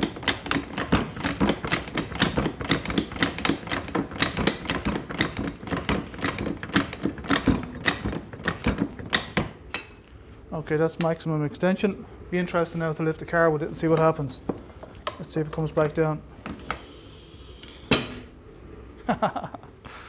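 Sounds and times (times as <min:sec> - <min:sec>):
floor jack clicking: 0:00.0 - 0:09.6.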